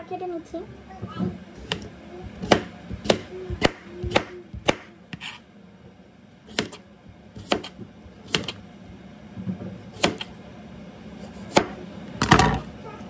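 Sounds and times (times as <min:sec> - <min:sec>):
knife slicing cucumber: 0:01.6 - 0:05.4, 0:06.5 - 0:06.8, 0:07.4 - 0:08.6, 0:09.8 - 0:10.3, 0:11.1 - 0:11.8.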